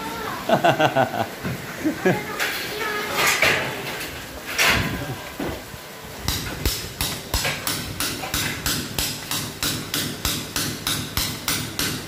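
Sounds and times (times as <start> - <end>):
hammer striking masonry wall: 6.2 - 12.0.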